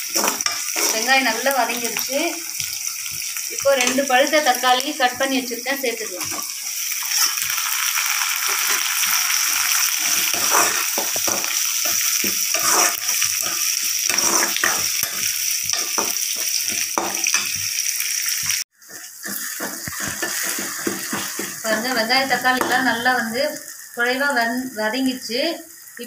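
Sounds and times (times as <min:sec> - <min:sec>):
metal spoon scraping pan: 0:00.0 - 0:01.6, 0:10.0 - 0:17.6, 0:18.9 - 0:23.0
food sizzling in hot oil: 0:00.0 - 0:26.0.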